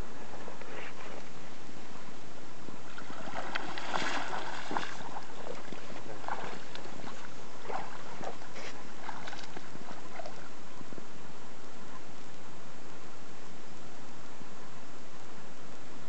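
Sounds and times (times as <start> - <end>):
shallow water splashing: 2.8 - 10.9.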